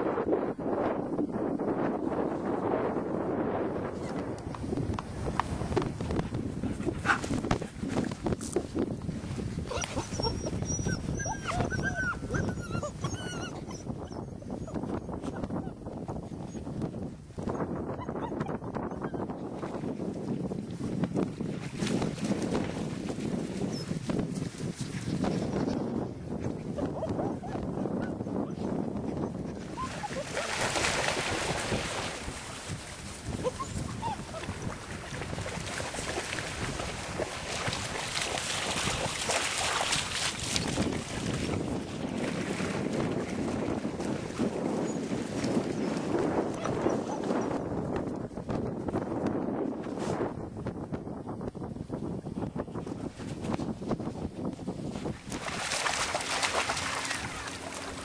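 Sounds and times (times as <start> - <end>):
wind on the microphone: 0.0 - 58.0
puppies whining and yipping: 9.7 - 15.8, 17.9 - 19.3, 26.8 - 28.6, 29.2 - 30.6, 33.4 - 34.8, 46.5 - 47.6.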